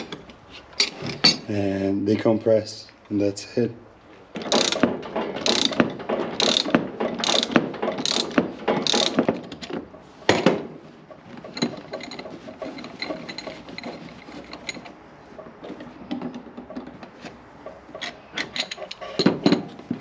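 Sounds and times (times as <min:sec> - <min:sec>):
metal parts clicking and rattling: 0:00.0 - 0:01.5, 0:04.4 - 0:19.9
ratchet wrench clicking: 0:04.5 - 0:05.8, 0:06.4 - 0:09.2.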